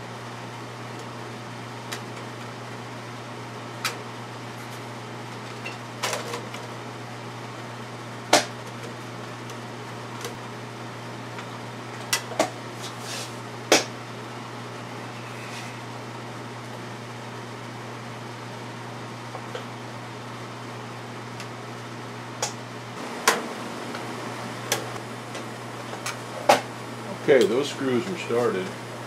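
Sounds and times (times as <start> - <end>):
steady low hum: 6.5 - 29.0.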